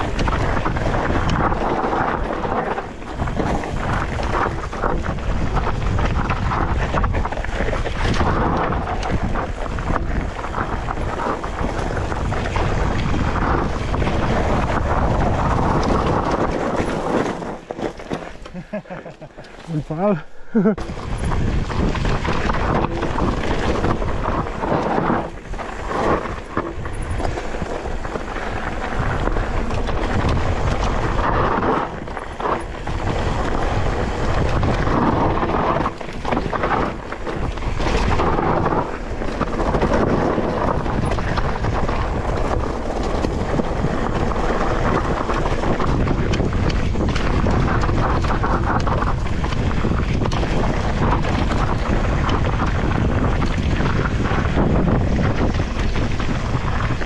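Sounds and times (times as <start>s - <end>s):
bike clattering over rough ground: 0.0s - 57.0s
wind buffeting microphone: 0.0s - 57.0s.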